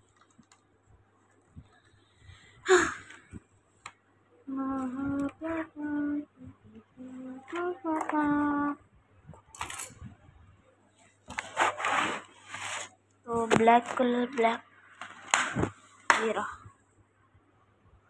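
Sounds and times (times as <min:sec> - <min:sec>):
boy humming a tune: 0:04.5 - 0:08.7.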